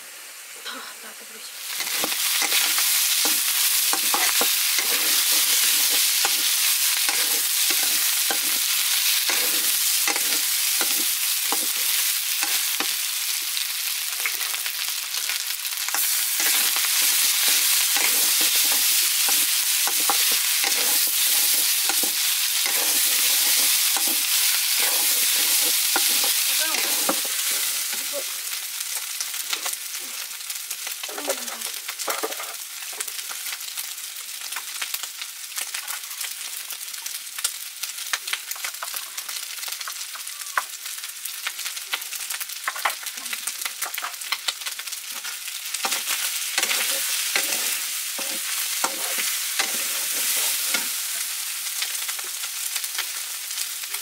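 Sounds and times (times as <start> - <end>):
food sizzling in hot oil: 0.0 - 54.0
spoon scraping a pan: 1.7 - 13.0, 15.9 - 28.1, 45.2 - 51.2.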